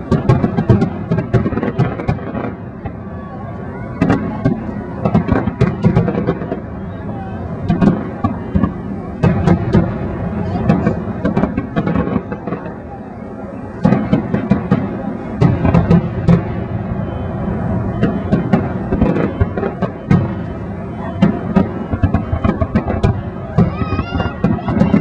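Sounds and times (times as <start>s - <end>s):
continuous low rumble: 0.0s - 25.0s
fireworks bangs and crackles: 0.0s - 25.0s.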